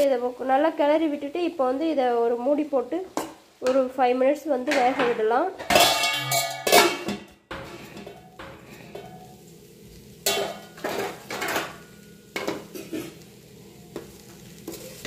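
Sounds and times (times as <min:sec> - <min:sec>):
metal spatula clanking on pan: 0:04.7 - 0:09.3, 0:10.2 - 0:13.2.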